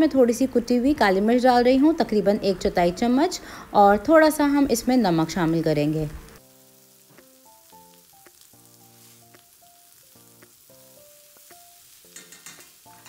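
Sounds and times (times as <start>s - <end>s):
vegetables sizzling in oil: 0.0s - 13.0s
soft music with held notes: 6.4s - 13.0s.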